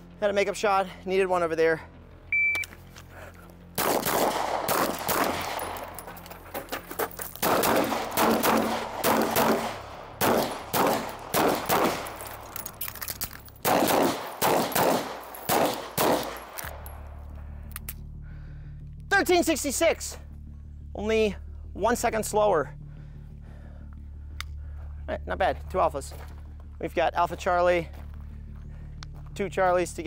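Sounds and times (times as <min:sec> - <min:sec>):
pistol shots: 0:03.8 - 0:06.2, 0:07.4 - 0:17.0.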